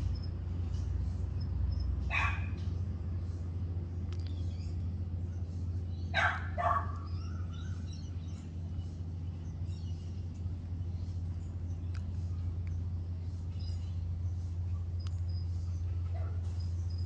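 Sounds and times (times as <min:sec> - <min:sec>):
steady low hum: 0:00.0 - 0:17.0
dog barking: 0:02.1 - 0:02.6, 0:06.1 - 0:07.0, 0:16.1 - 0:16.5.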